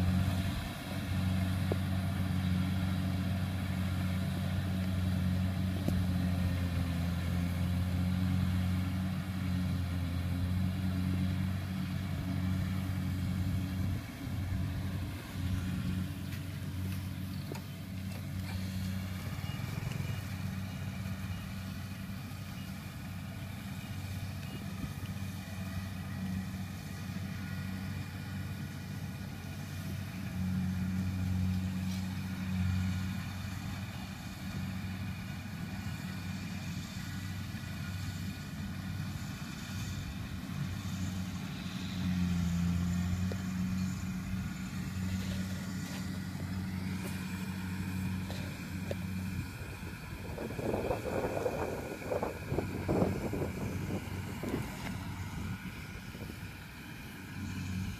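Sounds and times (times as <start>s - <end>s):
diesel engine droning: 0.0s - 57.9s.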